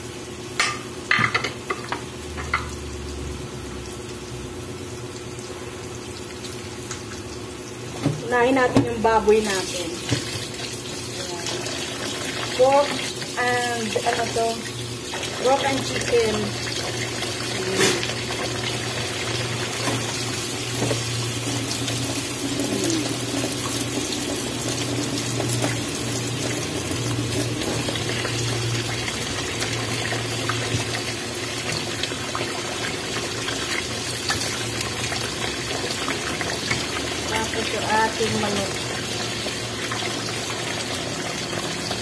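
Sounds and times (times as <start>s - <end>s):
meat sizzling in oil: 0.0s - 42.0s.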